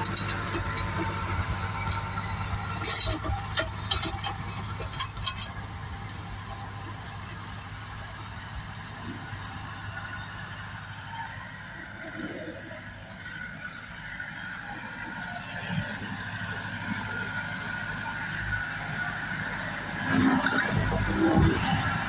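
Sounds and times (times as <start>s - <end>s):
tractor diesel engine running: 0.0s - 22.0s.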